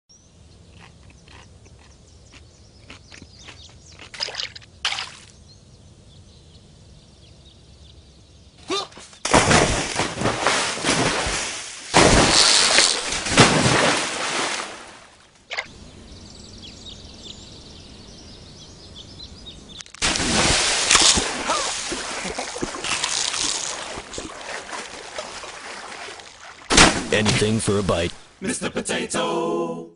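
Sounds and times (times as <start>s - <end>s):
water splashing and rushing: 4.1s - 5.3s, 9.3s - 16.8s, 19.5s - 28.4s.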